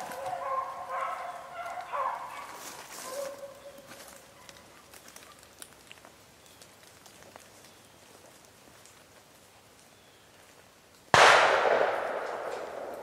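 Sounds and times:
shotgun shot: 11.1 - 13.0.

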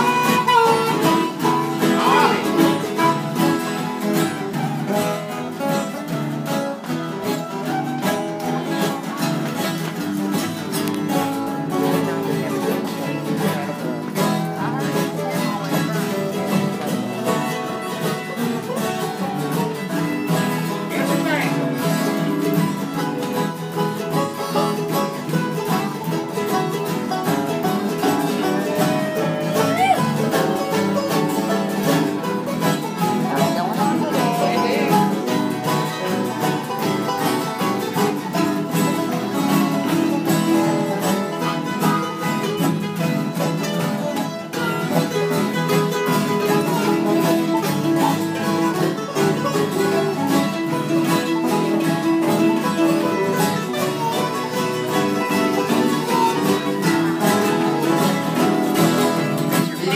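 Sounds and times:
harmonica playing lead: 0.0 - 4.4, 28.0 - 31.8
acoustic guitars strumming: 0.0 - 59.9.

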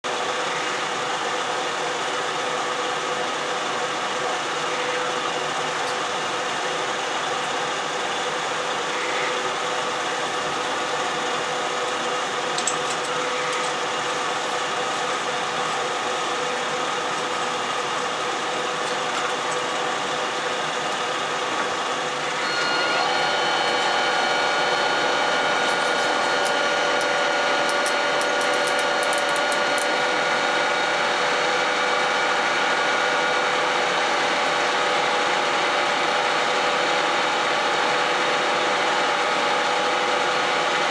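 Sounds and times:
lathe motor hum: 0.1 - 40.9
high gear whines: 21.6 - 33.3.

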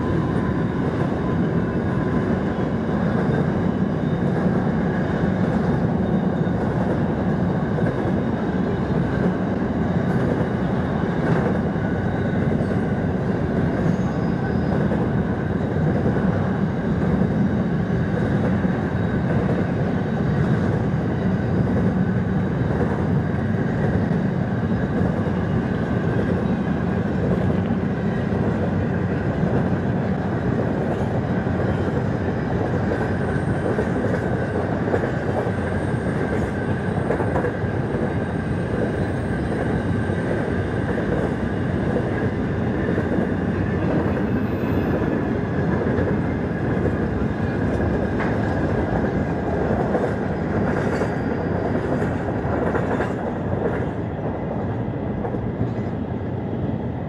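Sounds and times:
train wheels clattering on track: 0.0 - 56.1
faint thin squeal: 13.7 - 15.8, 50.8 - 51.7.

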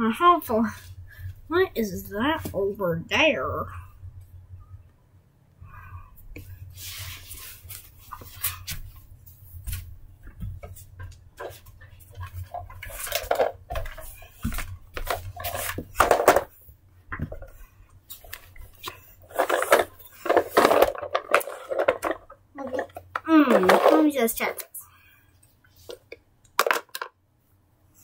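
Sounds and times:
toys clicking and knocking: 18.9 - 24.7, 25.9 - 27.2.

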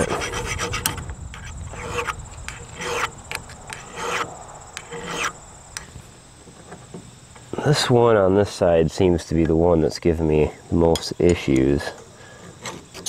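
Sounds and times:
hand file rasping on steel: 0.0 - 5.4.

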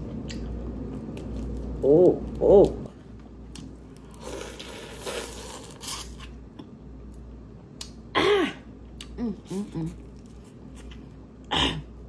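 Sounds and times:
person humming: 9.0 - 10.0.

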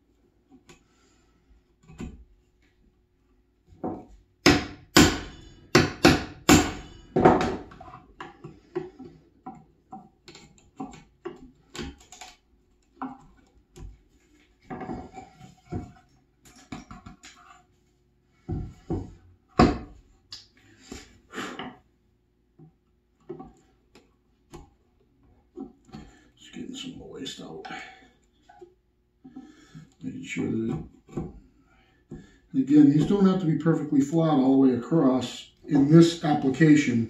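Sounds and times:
hammer striking chisel: 4.4 - 7.8.

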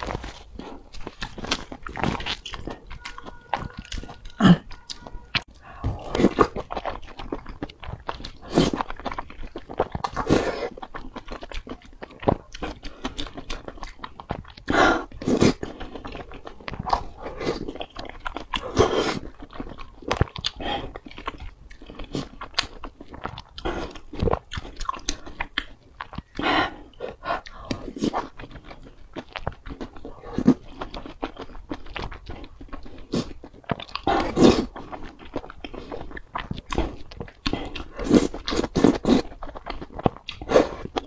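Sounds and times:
person chewing crunchy food: 0.0 - 41.0.

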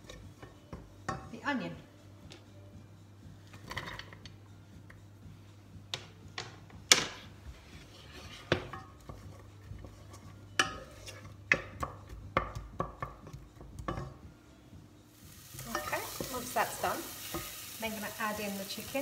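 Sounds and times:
wooden spoon scraping a saucepan: 7.5 - 11.4.

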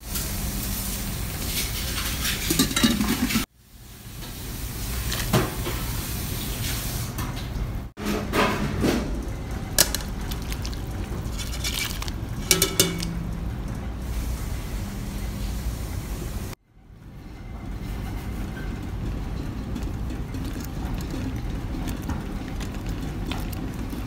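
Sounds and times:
soup bubbling in a pot: 9.8 - 13.0, 18.9 - 24.0
metallic clinks of pot lid: 12.5 - 13.2.

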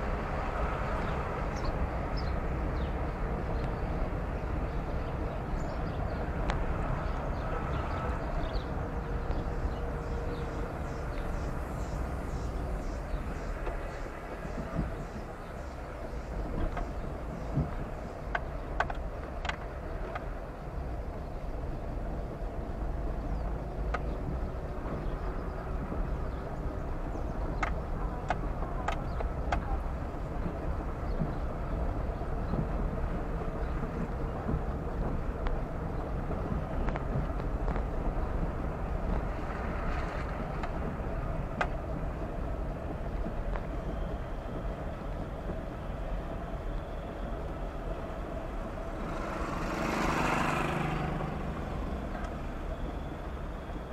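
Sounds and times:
car engine and road noise: 0.0 - 53.9
sharp clicks and knocks: 16.5 - 20.3.

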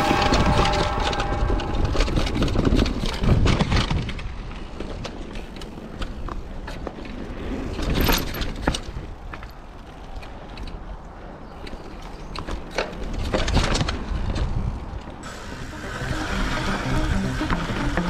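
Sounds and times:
bike rattling and knocking: 0.2 - 10.8, 11.6 - 15.2
bike tyres rolling on dirt: 0.6 - 15.5.

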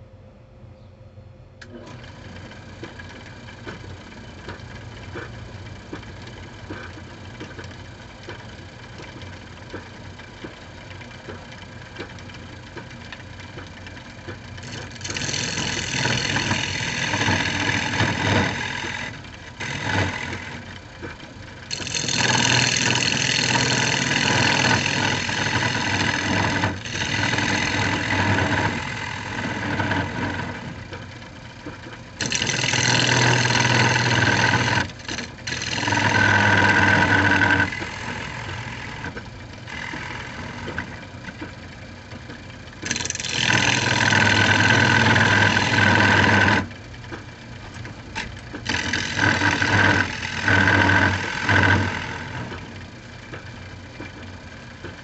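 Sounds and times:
turning tool cutting wood: 14.6 - 31.0, 32.2 - 41.4, 42.8 - 46.8, 47.8 - 52.8
wood lathe running: 14.6 - 31.2, 32.2 - 41.4, 42.7 - 46.8, 47.8 - 52.9.

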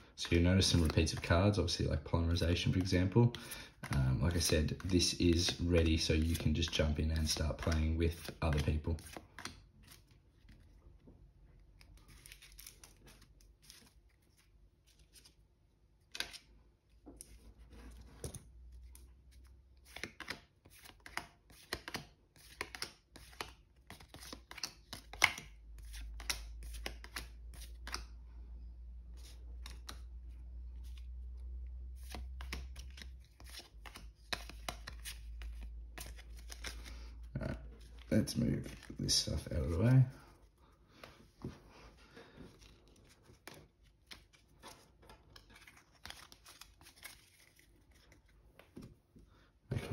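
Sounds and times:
cards clicking and slapping: 0.3 - 1.5, 2.4 - 10.6, 16.0 - 16.5, 18.2 - 28.2, 29.2 - 30.2, 32.0 - 37.0, 42.6 - 48.9.

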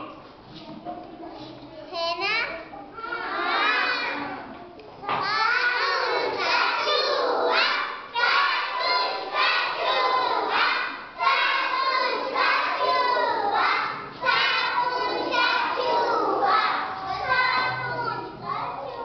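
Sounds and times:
children chanting in unison: 5.2 - 19.0.

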